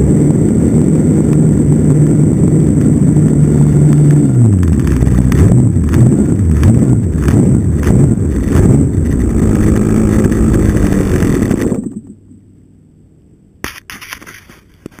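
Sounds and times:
model airplane engine running: 0.0s - 12.2s
sharp click: 13.6s - 15.0s.

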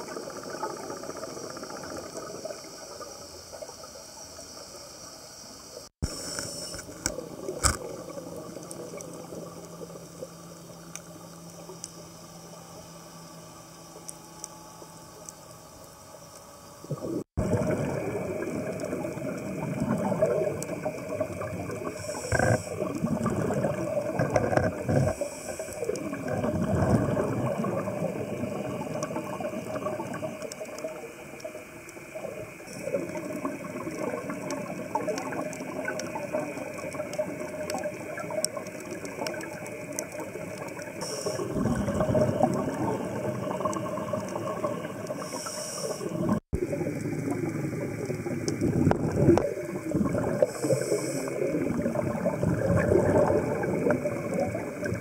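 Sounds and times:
bubbles: 0.0s - 4.0s, 6.0s - 12.1s, 16.8s - 55.0s
underwater clicks and crackle: 0.0s - 4.7s, 6.0s - 55.0s
regulator breathing: 41.0s - 41.6s, 45.2s - 46.4s, 50.4s - 51.5s.

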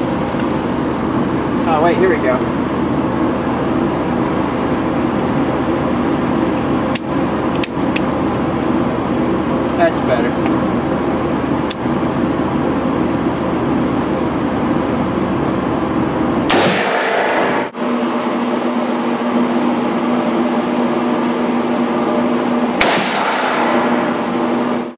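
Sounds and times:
steady background drone: 0.0s - 24.9s
rifle shots echoing indoors: 16.5s - 17.5s, 22.8s - 24.3s.

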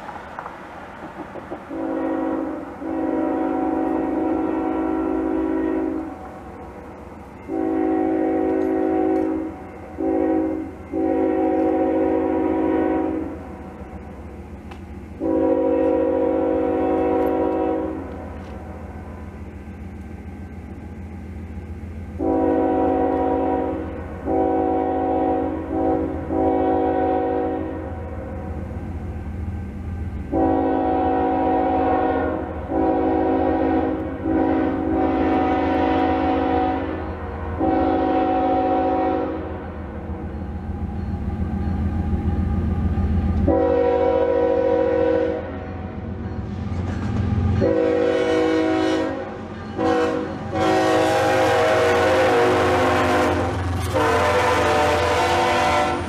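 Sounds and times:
locomotive low rumble: 0.0s - 56.0s
locomotive air horn blasts: 1.7s - 6.2s, 7.4s - 13.6s, 15.2s - 18.5s, 22.1s - 28.6s, 30.3s - 39.7s, 43.4s - 45.7s, 47.5s - 56.0s.

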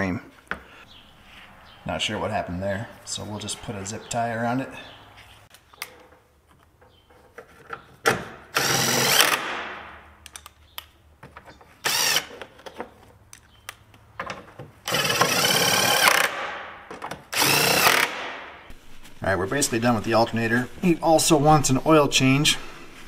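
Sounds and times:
cordless power tool running: 14.9s - 16.4s, 17.4s - 18.2s.

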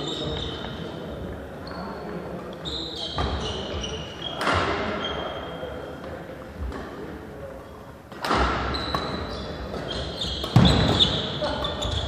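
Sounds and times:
sneakers squeaking on court: 0.0s - 5.7s, 8.5s - 12.0s
racket hitting shuttlecock: 8.1s - 11.2s.

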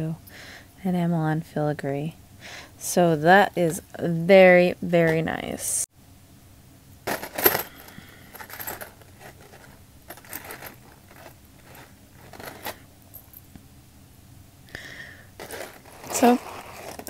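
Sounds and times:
metal jewelry jingling: 7.1s - 13.5s.

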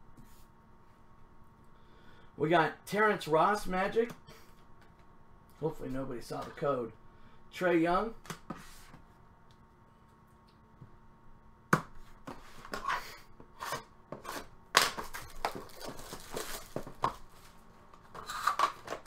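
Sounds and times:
packaging tearing and rustling: 15.0s - 17.0s.

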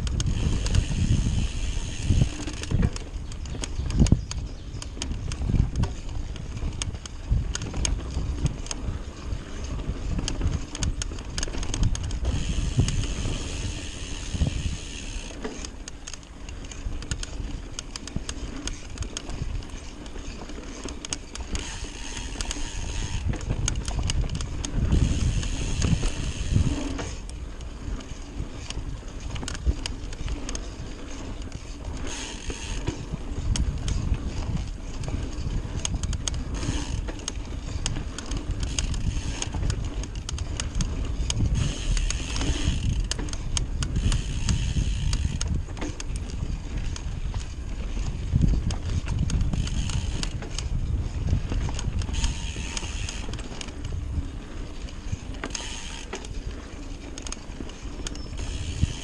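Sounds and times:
bike rattling and clattering: 0.0s - 59.0s.

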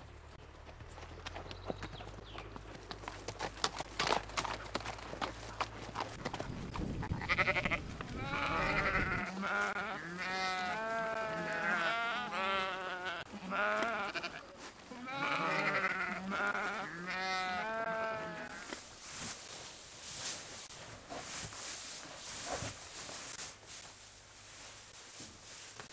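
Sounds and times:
farm animal bleating: 7.0s - 18.8s.

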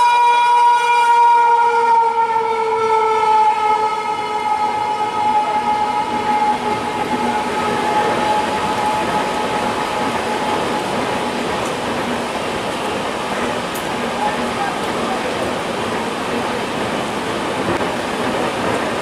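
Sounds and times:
locomotive horn: 0.0s - 11.4s
train rushing past: 2.8s - 19.0s.

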